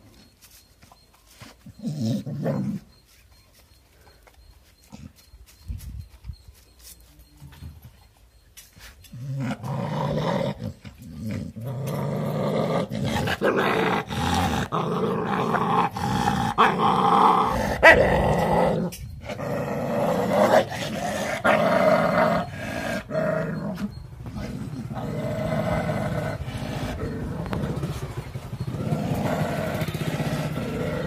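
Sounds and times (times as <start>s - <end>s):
dog growling: 9.1s - 31.0s.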